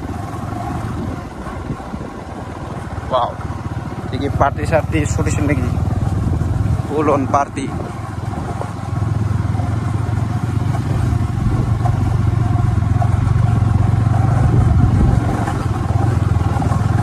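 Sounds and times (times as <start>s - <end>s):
wind noise on microphone: 0.0s - 3.2s, 5.6s - 8.9s, 10.7s - 17.0s
motorcycle engine running: 0.0s - 17.0s.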